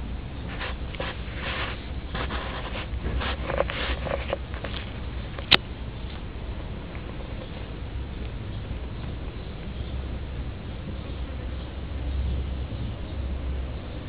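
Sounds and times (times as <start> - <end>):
low hum: 0.0 - 14.0
handling rustles and scrapes: 0.4 - 5.6.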